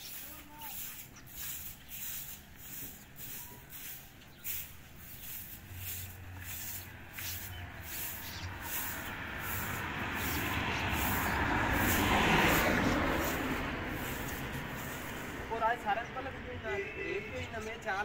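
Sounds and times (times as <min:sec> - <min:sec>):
broom sweeping concrete floor: 0:00.0 - 0:15.4
passing vehicle: 0:05.0 - 0:17.8.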